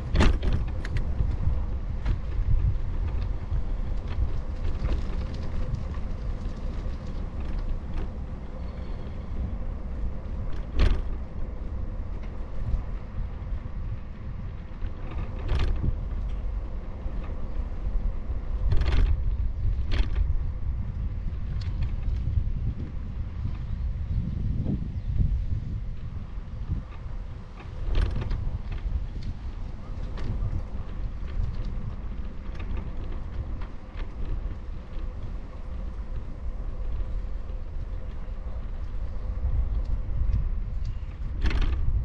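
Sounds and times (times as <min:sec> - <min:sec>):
wind and road noise rumble: 0:00.0 - 0:42.0.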